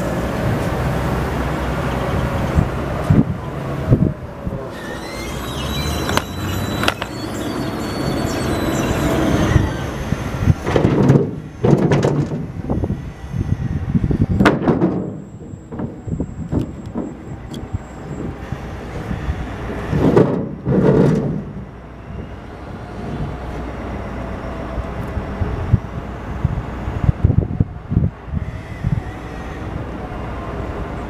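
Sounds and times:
truck engine rumbling: 0.0 - 31.0
loud knocks and clatters: 10.6 - 12.5, 14.4 - 17.2, 20.0 - 21.6.

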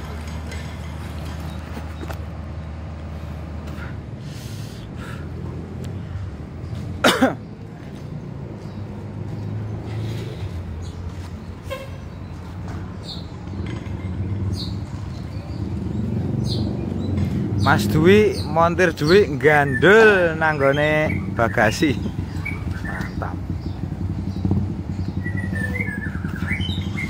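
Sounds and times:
bus horn toot: 11.6 - 12.1.

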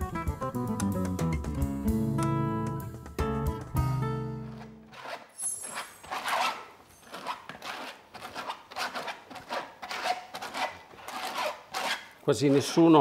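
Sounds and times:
guitar music: 0.0 - 4.9
plastic scraper rasping through sieve: 4.4 - 13.0.

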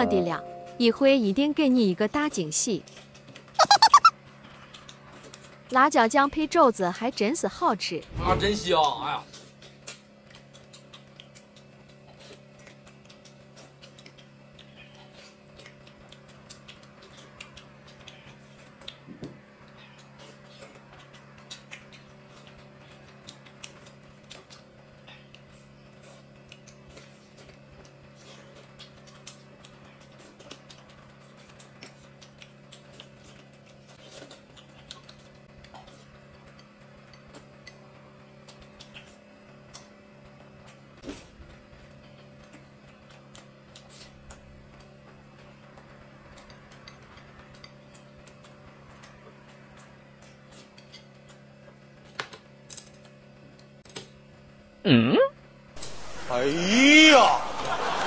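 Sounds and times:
chewing and mouth noises: 9.3 - 40.0
steady low hum: 55.7 - 58.0.

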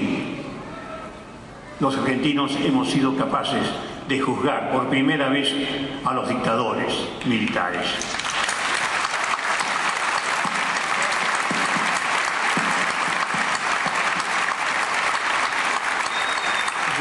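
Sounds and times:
crowd applauding: 8.0 - 17.0.

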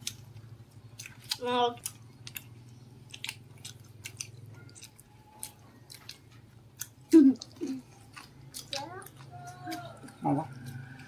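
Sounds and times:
crunchy food eating: 0.0 - 11.0.

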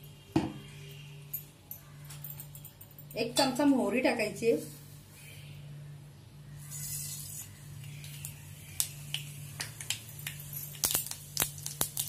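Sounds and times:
low steady hum: 0.0 - 12.0
seeds sizzling and popping in oil: 6.6 - 12.0.

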